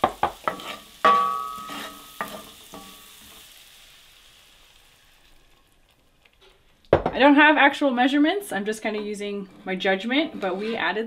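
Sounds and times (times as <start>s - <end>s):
spatula stirring and knocking on pan: 0.0s - 3.4s
food sizzling in butter: 0.0s - 11.0s.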